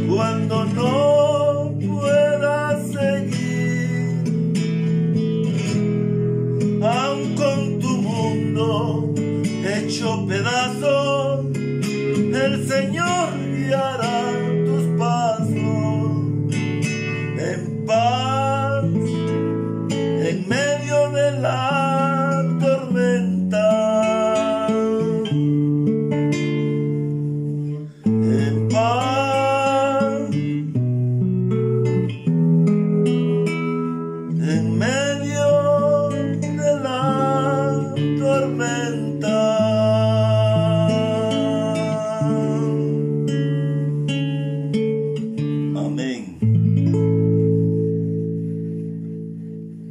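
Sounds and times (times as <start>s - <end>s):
acoustic guitar: 0.0s - 49.9s
man singing held notes: 45.8s - 46.4s.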